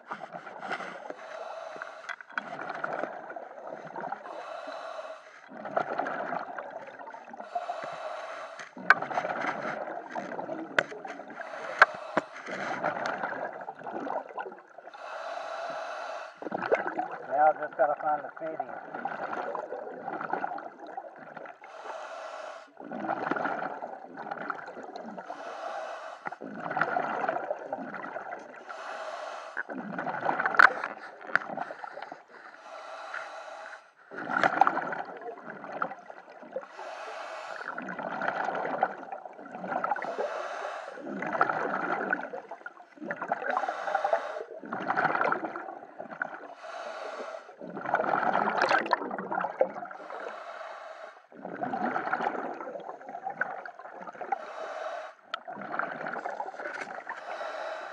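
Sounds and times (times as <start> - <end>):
exhaled bubbles underwater: 0.0 - 8.1, 8.8 - 15.8, 16.4 - 22.1, 22.7 - 25.6, 26.2 - 28.8, 29.6 - 32.5, 34.0 - 50.4, 51.3 - 57.9
regulator inhale hiss: 0.7 - 2.2, 4.3 - 5.5, 7.4 - 8.8, 11.4 - 12.6, 15.0 - 16.4, 21.6 - 22.8, 25.3 - 26.4, 28.6 - 29.6, 31.8 - 34.0, 36.7 - 37.7, 40.0 - 41.0, 43.5 - 44.5, 46.6 - 47.6, 50.0 - 51.2, 54.3 - 55.2, 57.2 - 57.9.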